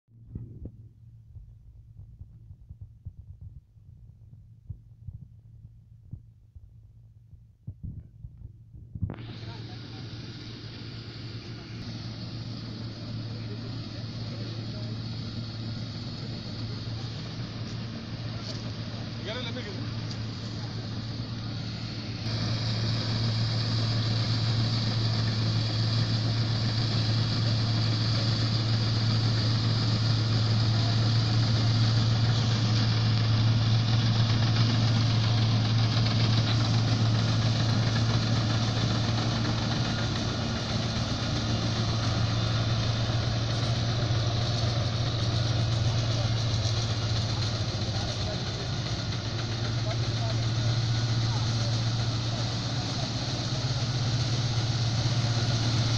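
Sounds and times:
diesel engine drone: 8.4 - 55.9
threshing machinery clatter: 12.4 - 55.9.

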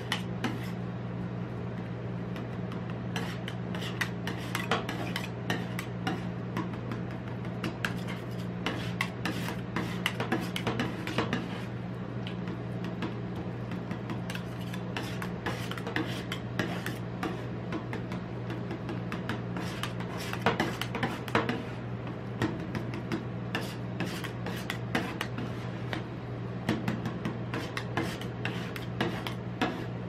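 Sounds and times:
metal spatulas scraping metal plate: 3.2 - 6.3.

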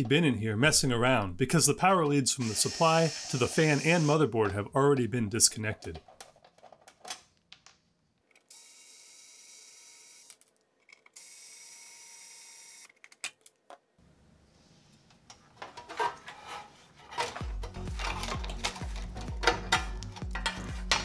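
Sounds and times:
cordless screwdriver whirring: 2.4 - 4.2
metal handling clatter: 15.5 - 21.0.

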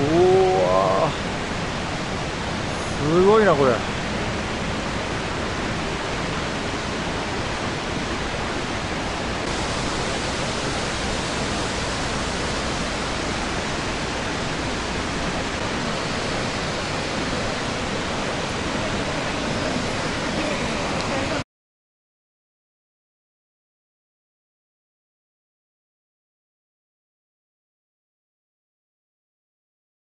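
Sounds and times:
waterfall roar: 0.0 - 21.4.

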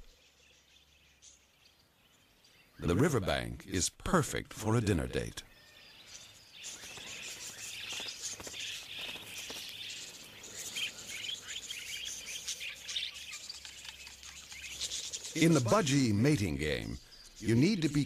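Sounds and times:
budgerigars chattering: 4.9 - 18.0.

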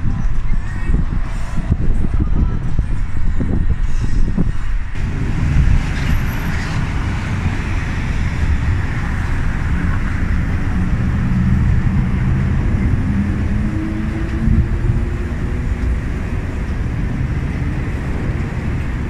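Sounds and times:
engine low rumble: 0.0 - 19.0
steady engine tones: 4.3 - 19.0.

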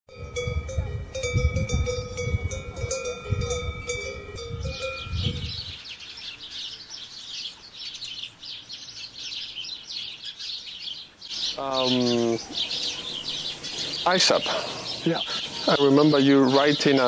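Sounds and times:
cowbells clanking: 0.1 - 5.8
birds chirping and singing: 0.1 - 17.0.

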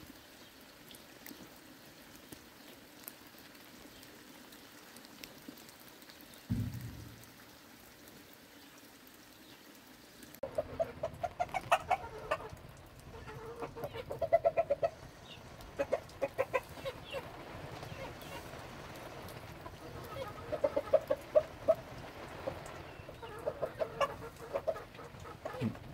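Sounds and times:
faint steady hiss: 0.0 - 25.9
low thump: 6.5 - 7.4
chickens clucking: 10.4 - 25.9.

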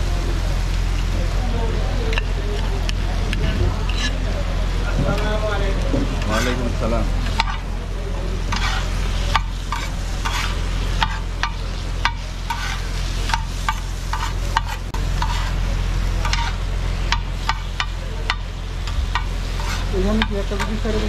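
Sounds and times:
frying sizzle: 0.0 - 21.0
metal spatulas clinking on griddle: 7.2 - 7.6, 8.5 - 15.5, 16.2 - 18.4.

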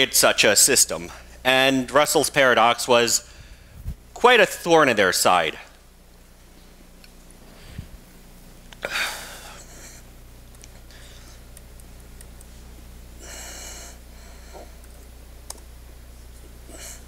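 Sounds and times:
low electrical hum: 0.0 - 17.0
person breathing close to microphone: 3.2 - 4.0, 7.5 - 8.0, 13.2 - 14.8.

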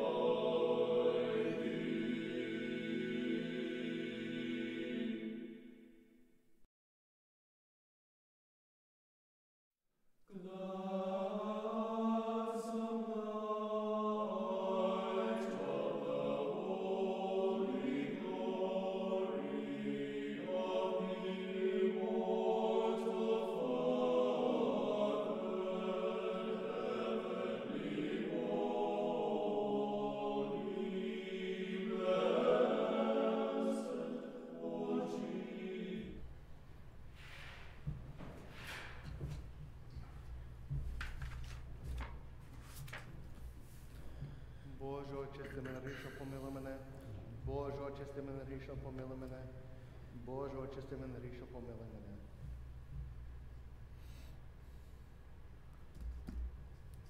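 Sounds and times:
choir singing chant: 0.0 - 6.2, 10.3 - 36.4.

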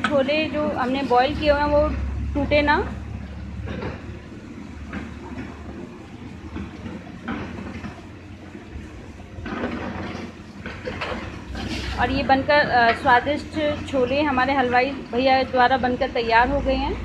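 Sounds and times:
low steady rumble: 0.0 - 17.0
ladle stirring in metal pot: 3.1 - 15.6.

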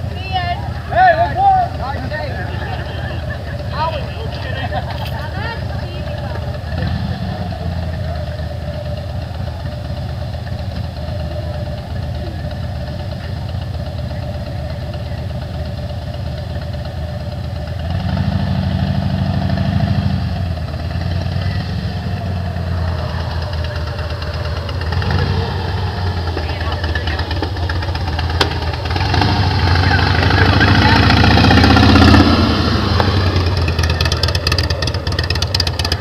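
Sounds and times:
motorcycle engine idling and revving: 0.0 - 36.0.

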